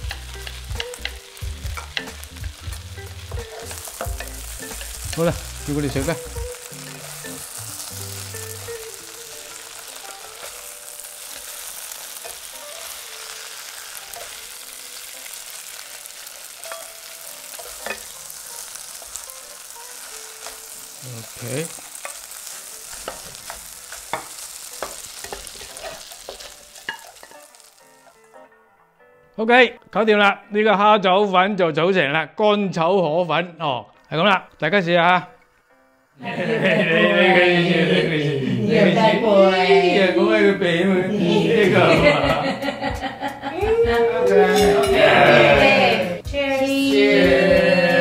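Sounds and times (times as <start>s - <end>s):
noodles sizzling in a wok: 0.0s - 28.4s, 44.3s - 48.0s
spatula scraping a wok: 16.2s - 27.5s.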